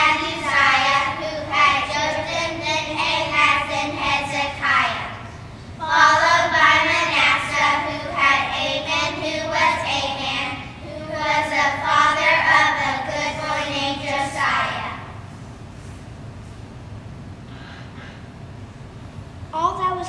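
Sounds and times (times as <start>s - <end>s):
young children singing: 0.0s - 15.1s.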